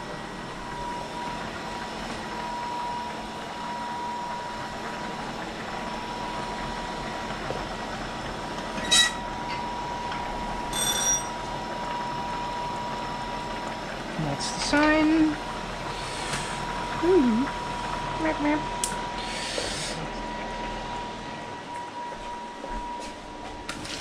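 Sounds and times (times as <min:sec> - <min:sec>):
pot boiling hard: 0:00.0 - 0:21.7
thin steady whine: 0:00.0 - 0:23.5
metal cookware clinking: 0:08.8 - 0:09.2, 0:10.7 - 0:11.4.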